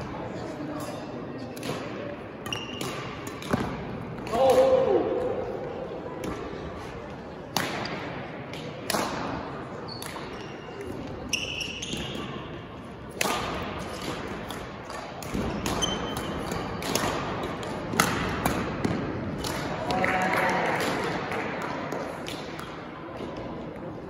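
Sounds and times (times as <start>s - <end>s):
racket hitting shuttlecock: 1.6s - 4.8s, 7.5s - 12.4s, 13.1s - 22.8s
shoes squeaking on court: 2.4s - 2.8s, 9.9s - 12.4s, 15.5s - 16.7s.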